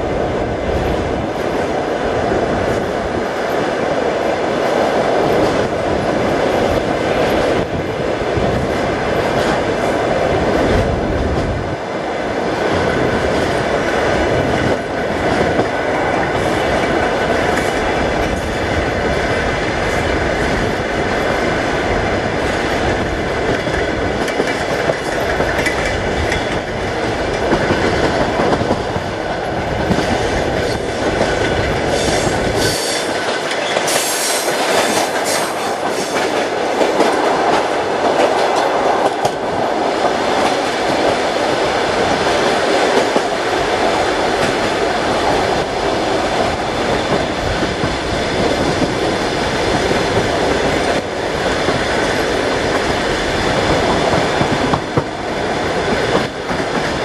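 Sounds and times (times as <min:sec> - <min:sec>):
train rumbling: 0:00.0 - 0:57.0
wheels clicking over rail joints: 0:22.9 - 0:53.0.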